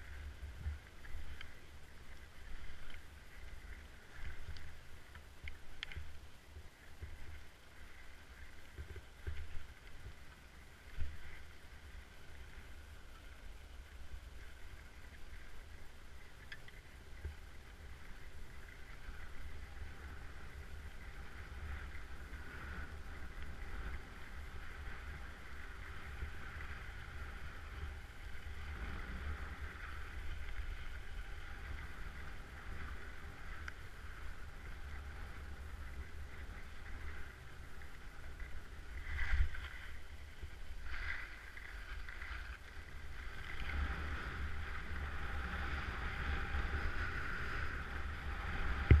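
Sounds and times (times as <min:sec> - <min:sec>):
skis scraping over snow: 0:17.0 - 0:49.0
low rumble: 0:17.7 - 0:49.0.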